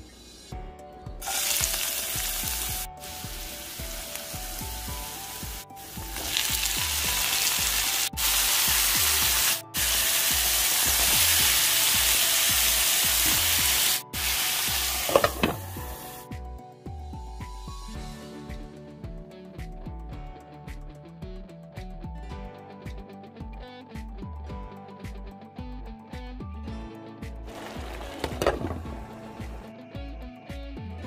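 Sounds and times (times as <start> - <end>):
faint background music: 0.0 - 31.0
mushrooms and onion sizzling: 1.2 - 16.3, 27.5 - 29.0.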